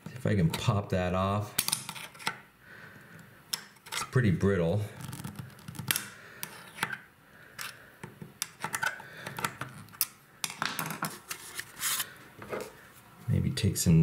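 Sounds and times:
screwdriver scraping inside metal valve: 0:03.5 - 0:04.2.

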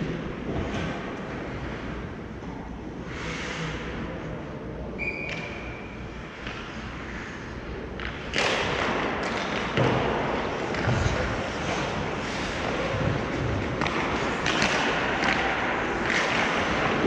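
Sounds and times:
hockey sticks and puck knocking: 0:07.9 - 0:17.0.

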